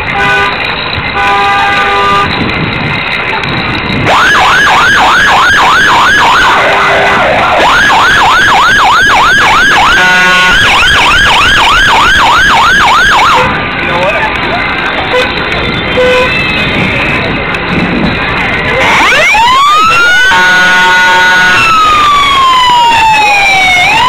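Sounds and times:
vehicle horn: 0.1s - 2.4s, 6.5s - 7.6s, 9.8s - 10.8s, 15.0s - 16.6s, 18.7s - 19.2s, 20.2s - 21.6s
emergency siren yelping: 4.0s - 13.6s, 18.7s - 24.0s.

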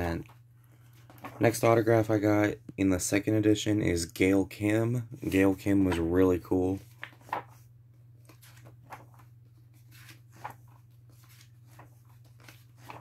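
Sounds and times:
book pages rustling: 0.0s - 2.1s, 5.2s - 13.0s.

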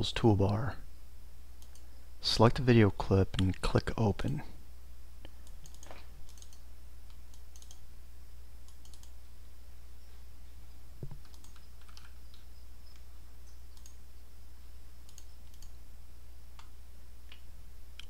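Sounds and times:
steady low hum: 0.0s - 18.0s
computer mouse clicks: 1.6s - 1.9s, 5.2s - 7.8s, 8.7s - 9.2s, 11.0s - 14.0s, 15.1s - 15.8s.

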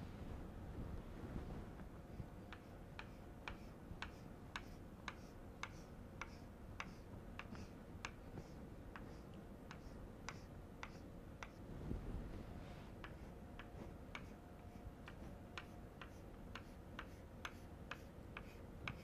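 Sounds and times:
low room hum: 0.0s - 19.0s
chalk tapping on a blackboard: 2.5s - 11.6s, 13.0s - 19.0s.

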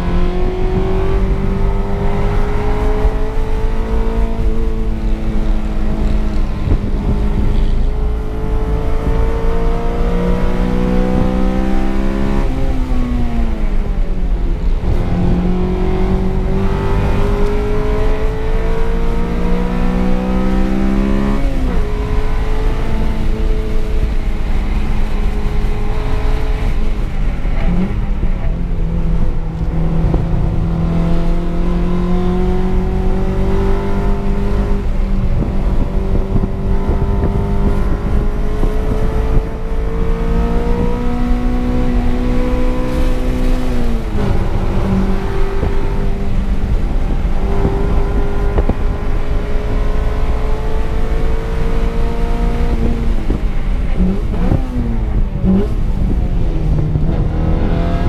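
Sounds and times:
car engine under load: 0.0s - 58.0s.

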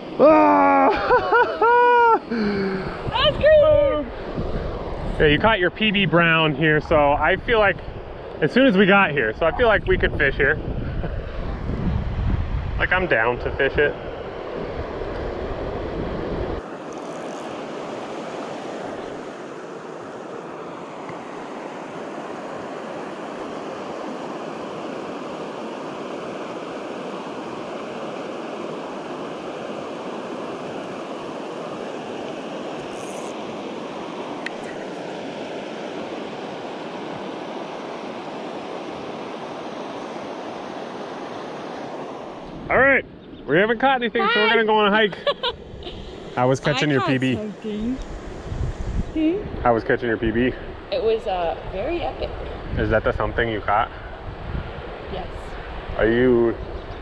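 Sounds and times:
wind rumbling on microphone: 0.9s - 57.0s
river water flowing: 14.1s - 42.7s.

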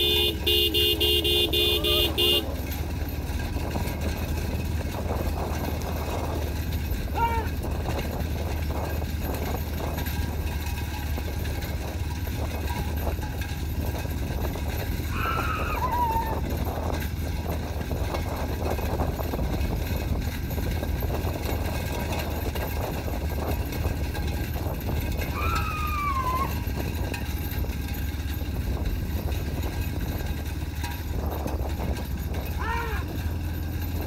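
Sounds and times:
cart rattling: 0.0s - 34.0s
hooves trotting on dirt: 0.0s - 34.0s
person calling: 1.6s - 2.4s, 32.6s - 33.1s.

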